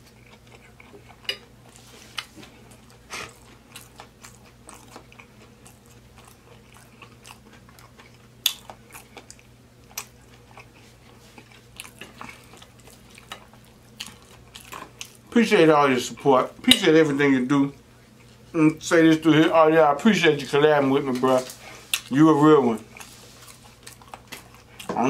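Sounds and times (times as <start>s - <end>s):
person chewing with mouth clicks: 0.0s - 15.3s, 21.5s - 22.1s, 22.8s - 25.0s.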